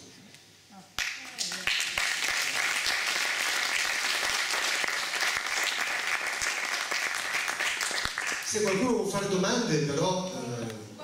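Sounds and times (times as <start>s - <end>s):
audience applauding: 1.0s - 8.9s.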